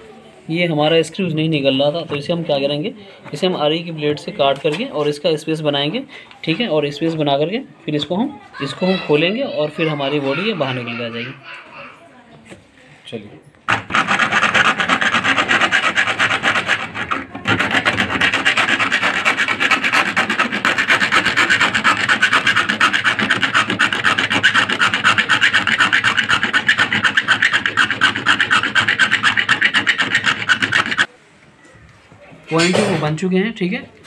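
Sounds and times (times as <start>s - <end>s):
hacksaw blade sawing screw: 13.7s - 31.1s.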